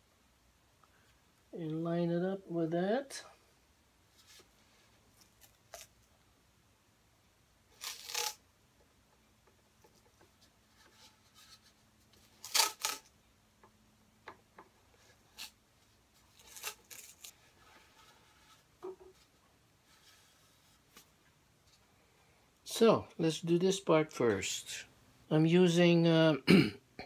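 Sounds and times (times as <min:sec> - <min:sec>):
tape pulled off a roll: 0:07.7 - 0:08.4, 0:10.7 - 0:13.1.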